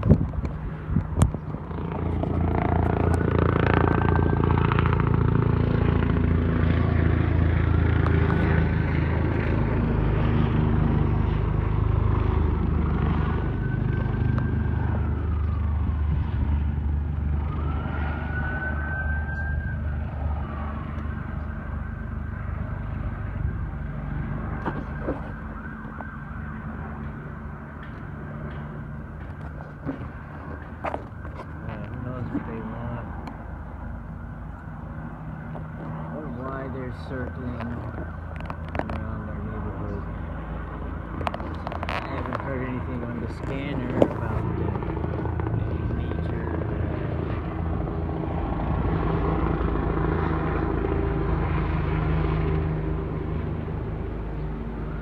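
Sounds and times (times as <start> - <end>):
helicopter rotor thudding: 0.0 - 14.9, 40.2 - 52.6
high whine: 0.0 - 55.0.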